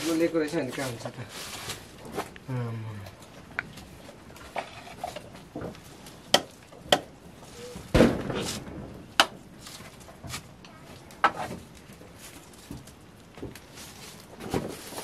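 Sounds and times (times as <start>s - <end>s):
knife chopping dry wooden sticks: 6.3s - 7.1s, 9.2s - 9.4s.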